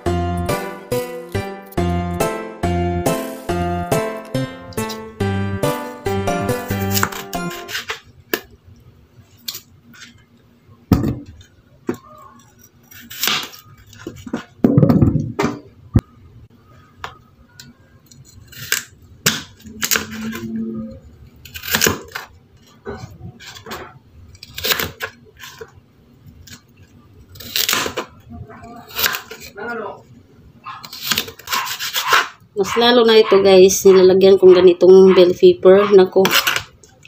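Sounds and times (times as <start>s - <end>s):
knife chopping on cutting board: 6.7s - 7.8s.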